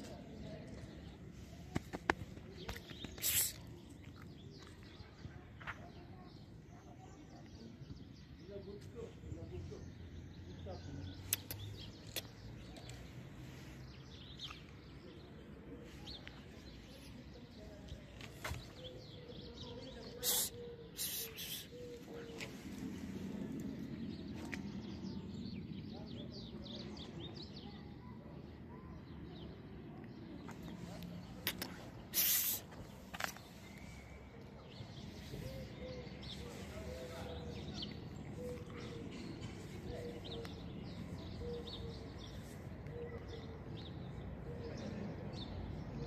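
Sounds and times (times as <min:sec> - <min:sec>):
faint small-bird chirps: 0:10.7 - 0:13.7.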